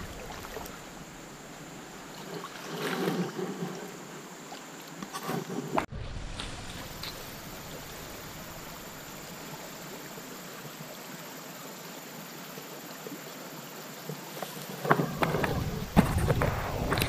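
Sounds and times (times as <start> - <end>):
water splashes and knocks: 0.0 - 9.2, 14.1 - 17.0
water washing around wading person: 0.0 - 10.9.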